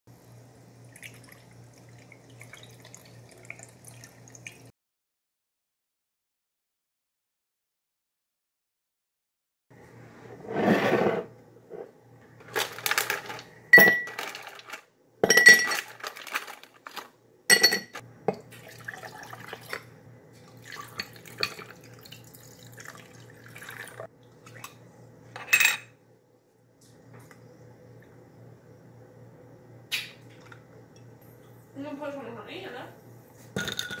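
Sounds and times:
liquid being poured: 0.8 - 4.7, 18.4 - 19.9, 20.5 - 24.8
ice cubes clinking in glass: 12.5 - 18.0, 33.6 - 34.0.

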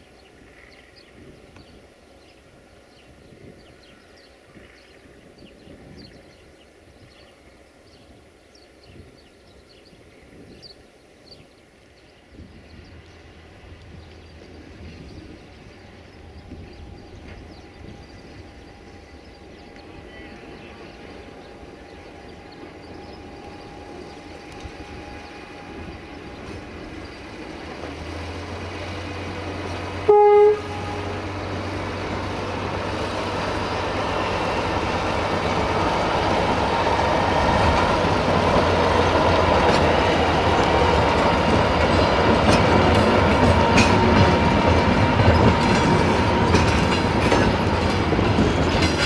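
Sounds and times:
short horn toot: 30.1 - 31.2
wheel clicks over rail joints: 45.3 - 49.0.

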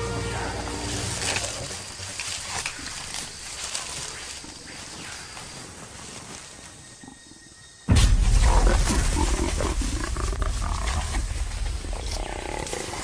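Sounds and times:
jaguar growling: 8.6 - 13.0.

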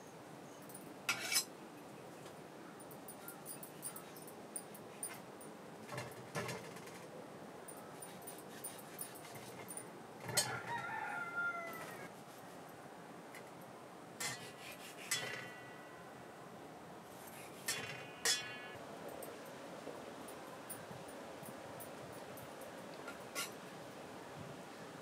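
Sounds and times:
rooster crowing: 10.2 - 12.1.

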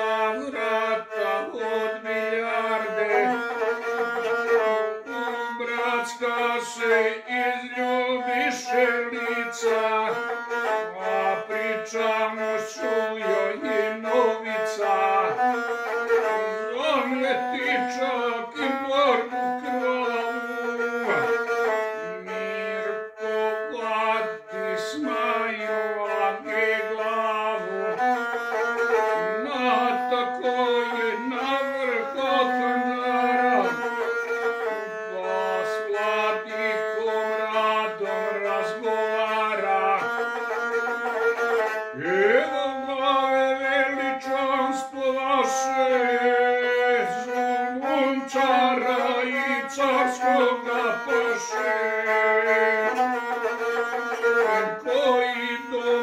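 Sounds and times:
bowed single-string fiddle melody: 0.0 - 56.0.

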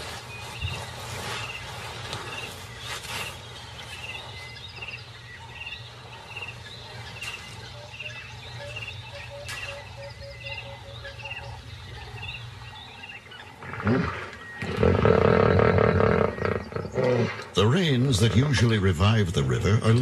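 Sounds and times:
hippos grunting and snorting: 13.4 - 18.6.

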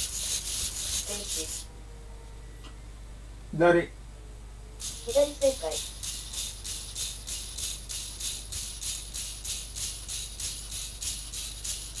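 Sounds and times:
robot servos whirring: 0.0 - 1.7, 4.8 - 12.0.

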